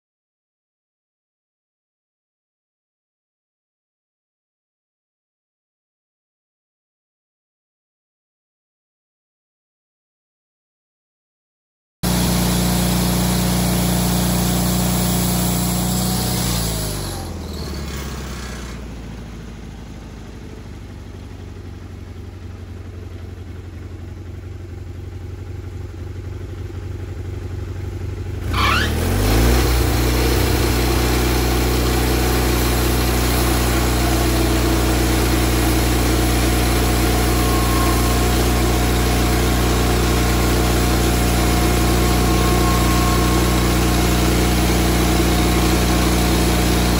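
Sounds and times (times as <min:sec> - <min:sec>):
sawmill engine running: 0:12.0 - 0:46.9.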